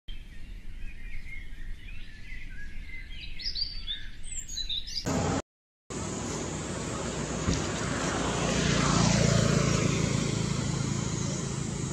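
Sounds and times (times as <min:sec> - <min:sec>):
birds chirping: 0:00.1 - 0:08.4.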